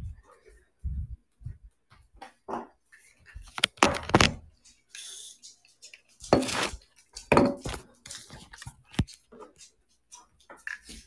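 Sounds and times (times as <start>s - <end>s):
objects clattering and rustling: 2.1s - 4.9s, 5.5s - 11.0s
knocks and scrapes: 2.5s - 4.5s, 5.8s - 11.0s.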